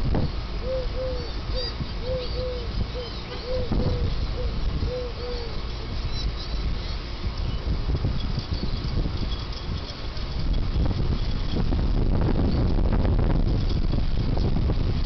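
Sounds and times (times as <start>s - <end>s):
wind buffeting microphone: 0.0s - 15.0s
bird cooing: 0.6s - 5.7s.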